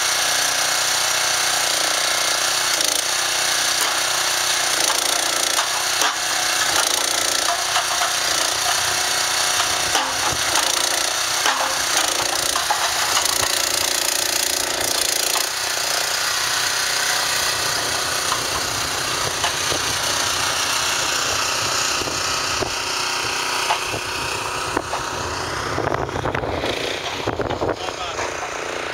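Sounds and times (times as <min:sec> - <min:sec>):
tractor engine running: 0:00.0 - 0:28.9
wooden posts knocking: 0:04.8 - 0:14.1.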